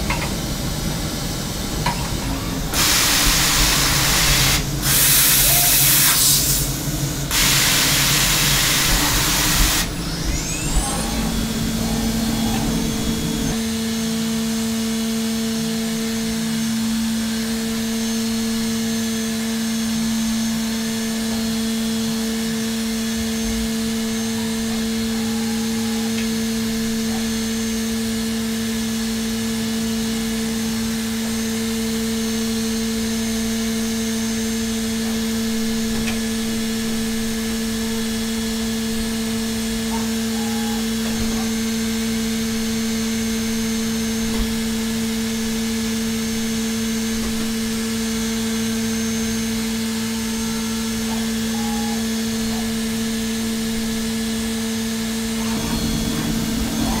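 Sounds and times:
mill spindle whining: 0:00.0 - 0:57.0
hiss of metal cutting: 0:02.7 - 0:13.6.

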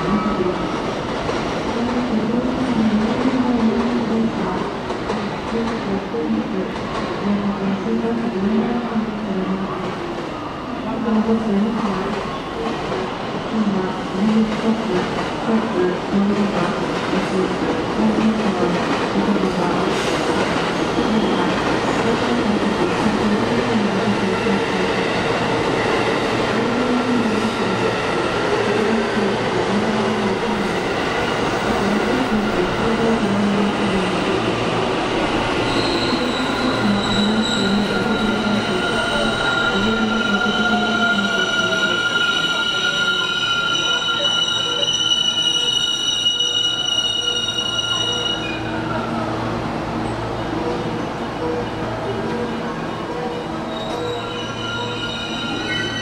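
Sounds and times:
electric train running by: 0:12.0 - 0:56.0
high brake squeals: 0:35.6 - 0:48.7, 0:53.7 - 0:56.0.

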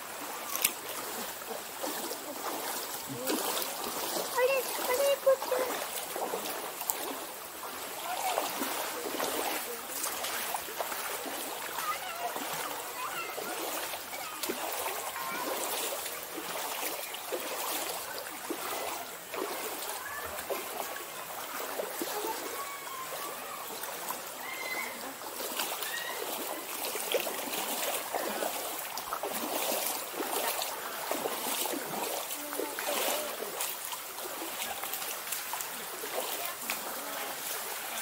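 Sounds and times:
stream rushing over rocks: 0:00.0 - 0:38.0
water splashes: 0:00.0 - 0:38.0.

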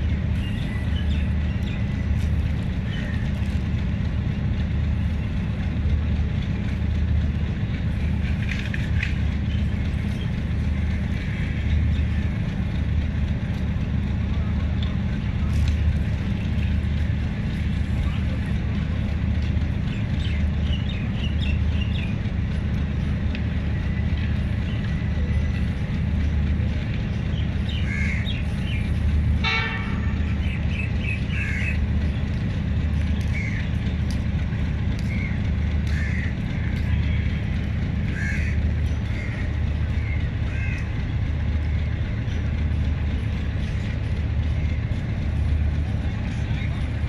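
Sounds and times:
locomotive idling: 0:00.0 - 0:47.0
train horn toot: 0:29.4 - 0:30.4.

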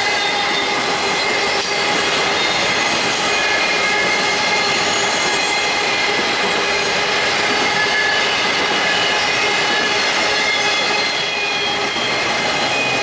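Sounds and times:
high wheel squeal: 0:00.0 - 0:13.0
train wheels rushing on rail: 0:00.0 - 0:13.0.

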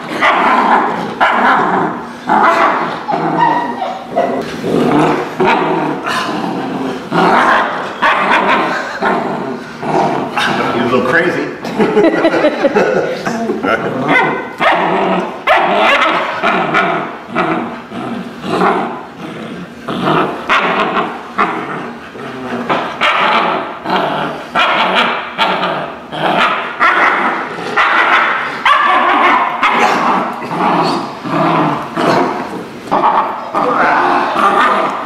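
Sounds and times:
puppy growling and barking: 0:00.0 - 0:10.8, 0:13.8 - 0:35.0.

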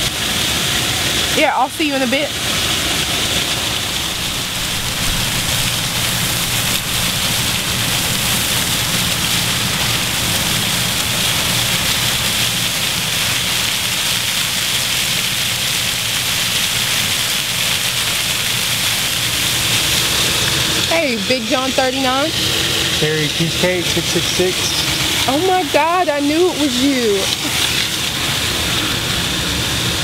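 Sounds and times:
fountain water splashing: 0:00.0 - 0:30.0.

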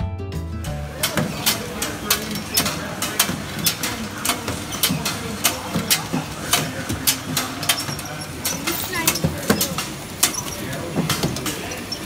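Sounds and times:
machine clacking: 0:00.8 - 0:12.0.

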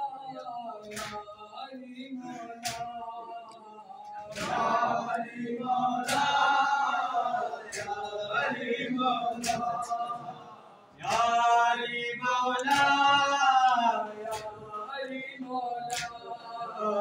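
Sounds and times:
men chanting together: 0:00.0 - 0:17.0
chest-beating slaps: 0:04.3 - 0:04.7, 0:06.0 - 0:06.5, 0:09.4 - 0:09.9, 0:12.6 - 0:13.1.

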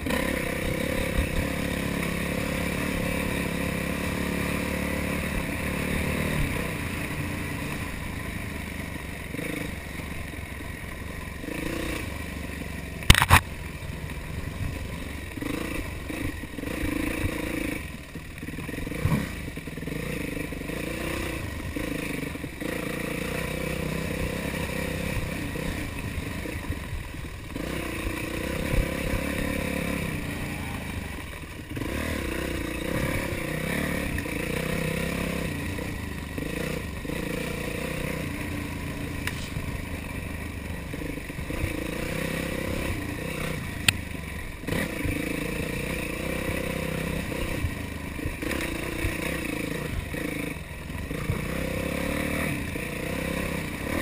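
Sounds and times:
bike rattling and scraping: 0:00.0 - 0:54.0
dirt bike engine revving: 0:00.0 - 0:54.0.

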